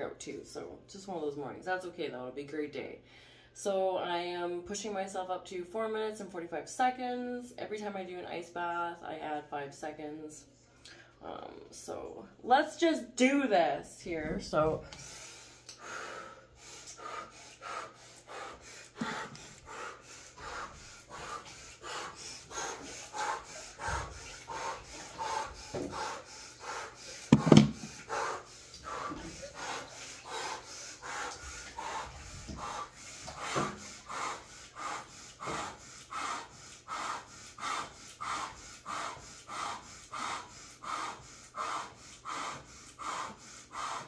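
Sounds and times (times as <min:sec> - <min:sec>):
woman breathing hard and fast: 0:14.9 - 0:44.0.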